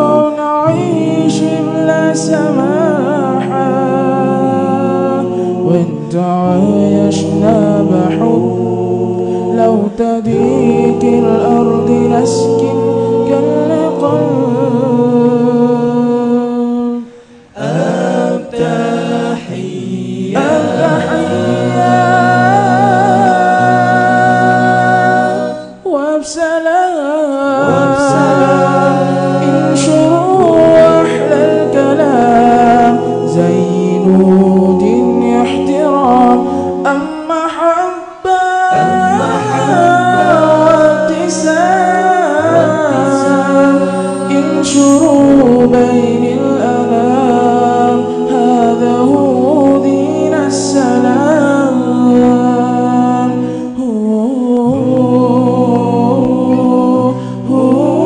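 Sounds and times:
male voices singing a cappella: 0.0s - 58.0s
low sustained bass voice: 27.6s - 36.5s, 38.7s - 41.4s, 42.2s - 52.9s.

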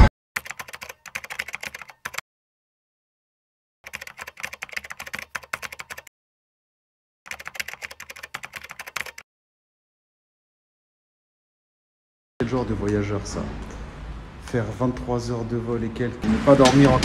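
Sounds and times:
keyboard typing clicks: 0.4s - 2.2s, 3.9s - 6.1s, 7.3s - 9.2s.

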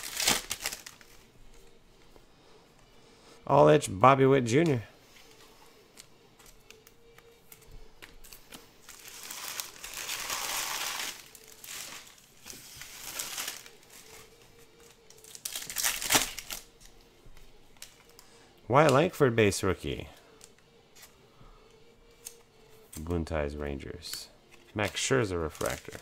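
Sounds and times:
foil wrapper crinkling: 0.0s - 1.2s, 8.2s - 16.7s, 25.5s - 26.0s.

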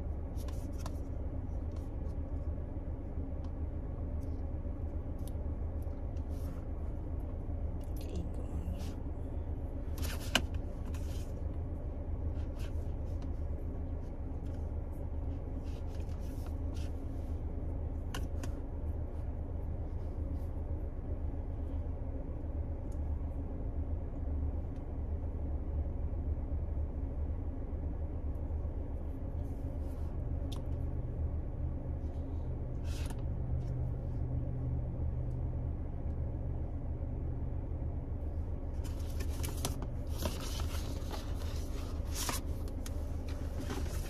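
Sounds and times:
car engine idling: 0.0s - 44.0s
cardboard box rustling and scraping: 38.8s - 42.6s, 43.2s - 44.0s.

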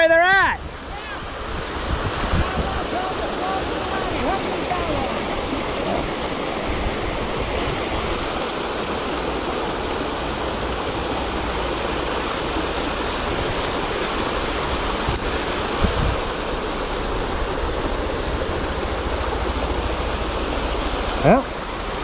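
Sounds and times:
river water rushing: 0.0s - 22.0s.

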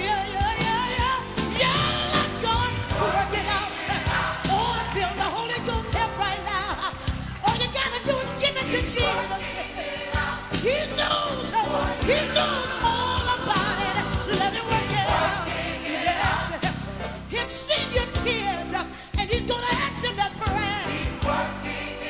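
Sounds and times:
choir singing: 0.5s - 5.7s, 8.7s - 17.2s, 20.7s - 22.0s.

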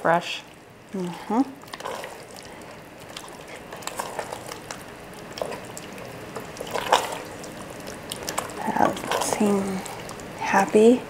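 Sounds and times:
thick sauce plopping: 1.0s - 10.5s.

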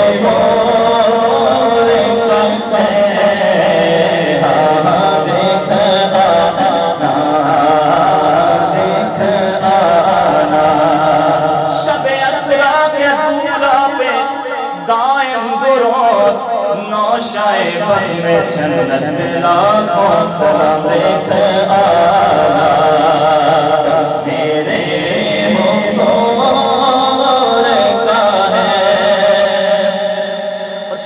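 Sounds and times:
man singing into a microphone: 0.0s - 31.0s.

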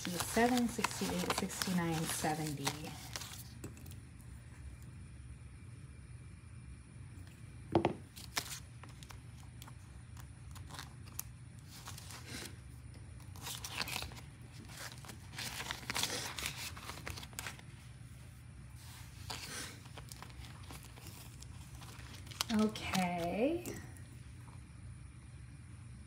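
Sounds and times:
paper banknotes rustling: 0.0s - 3.6s, 8.0s - 12.6s, 13.2s - 23.4s
plastic envelope crinkling: 0.0s - 3.9s, 8.0s - 12.6s, 13.2s - 18.1s, 18.8s - 24.0s.

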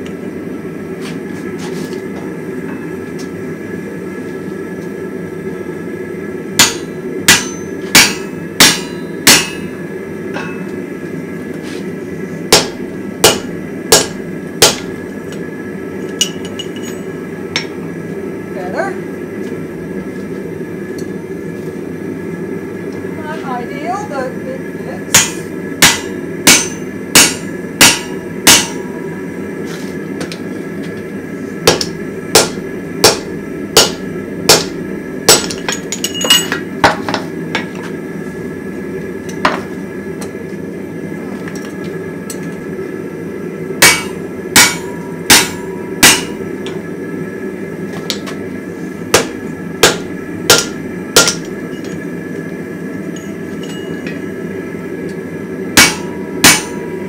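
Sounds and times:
hammer ringing on anvil: 6.6s - 9.8s, 10.4s - 10.8s, 12.5s - 14.9s, 16.1s - 17.7s, 25.1s - 29.1s, 31.7s - 36.7s, 43.8s - 46.5s, 49.1s - 52.1s, 53.1s - 54.3s, 55.8s - 57.0s.

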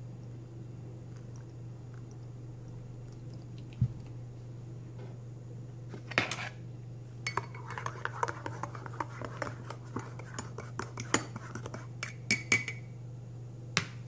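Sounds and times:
steady low hum: 0.0s - 14.0s
spoon clinking in a ceramic mug: 7.2s - 12.9s.

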